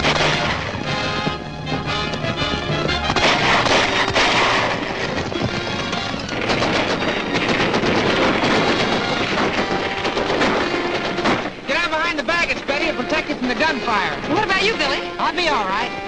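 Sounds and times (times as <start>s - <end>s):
machine-gun fire: 0.0s - 1.3s, 2.9s - 11.9s
gunshots: 0.0s - 15.1s
film music: 0.0s - 16.0s.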